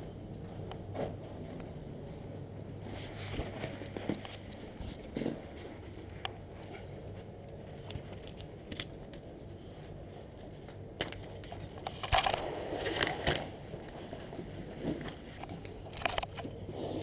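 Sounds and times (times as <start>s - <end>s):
curtain fabric rustling: 1.0s - 8.2s.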